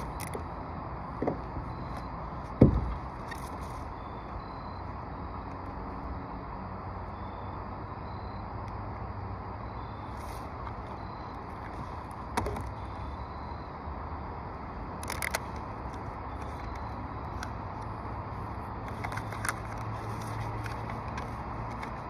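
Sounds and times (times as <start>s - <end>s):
outdoor background rumble: 0.0s - 22.0s
sharp low thump: 2.6s - 3.0s.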